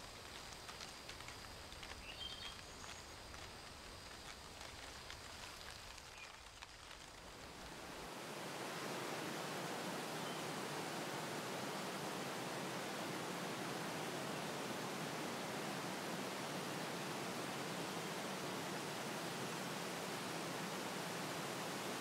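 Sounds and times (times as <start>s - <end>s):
small clicks and rustles: 0.0s - 7.5s
steady rushing nature noise: 0.0s - 22.0s.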